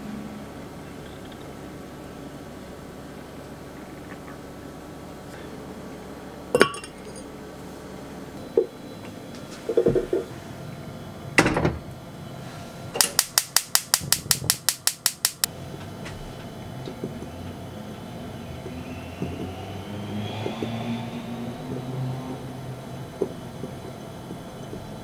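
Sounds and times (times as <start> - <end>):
clay pot clinking: 6.6 - 7.3
gas stove igniter clicking: 13.0 - 15.5
pot knocking on stove grate: 13.0 - 15.5.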